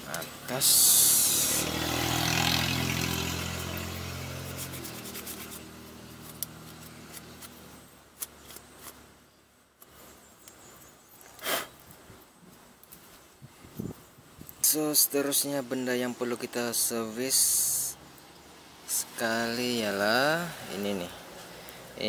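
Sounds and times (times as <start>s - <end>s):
vehicle engine hum: 0.0s - 9.2s
cloth rubbing on metal bracket: 3.6s - 9.0s.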